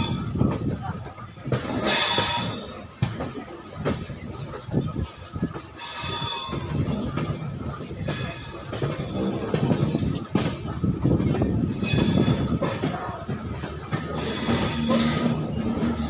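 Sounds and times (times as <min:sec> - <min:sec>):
rail joints clattering: 0:00.0 - 0:16.0
train wheels rumbling on rails: 0:00.0 - 0:16.0
high wheel squeal: 0:01.8 - 0:02.8, 0:05.8 - 0:06.8.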